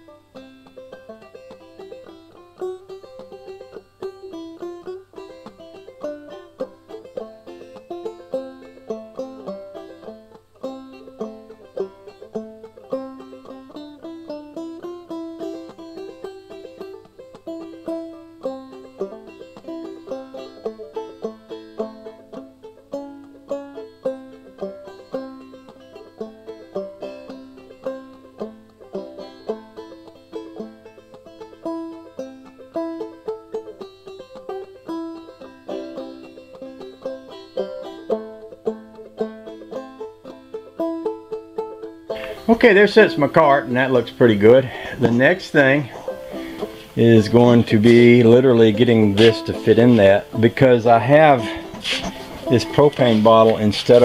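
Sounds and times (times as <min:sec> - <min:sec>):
plucked string instrument: 0:00.0 - 0:54.0
steady beat: 0:45.8 - 0:54.0.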